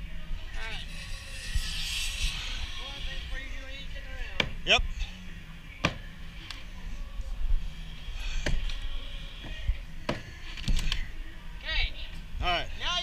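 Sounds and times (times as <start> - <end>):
steady low rumble: 0.0 - 10.1.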